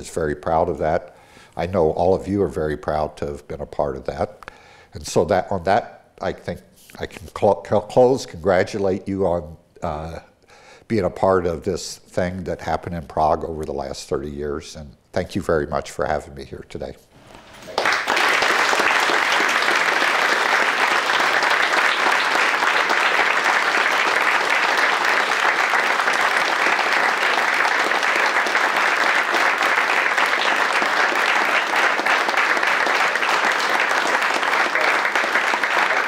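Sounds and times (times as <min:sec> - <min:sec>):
audience applauding: 0:17.5 - 0:36.0.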